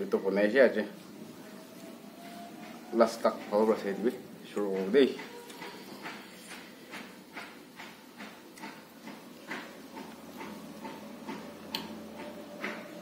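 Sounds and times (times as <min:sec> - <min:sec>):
wet chewing: 0:04.5 - 0:11.8.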